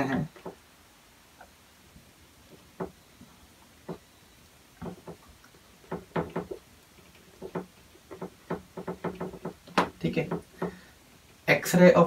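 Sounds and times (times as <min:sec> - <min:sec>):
marker tapping on whiteboard: 0:02.8 - 0:03.0, 0:05.8 - 0:06.6, 0:07.3 - 0:10.8.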